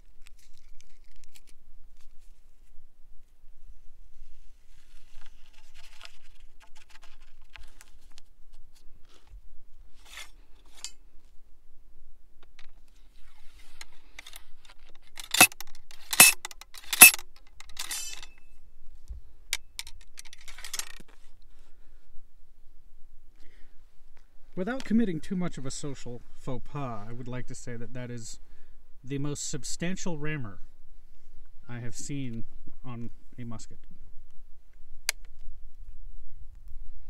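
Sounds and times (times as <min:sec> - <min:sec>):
ramrod clanking down rifle barrel: 0:15.1 - 0:18.4.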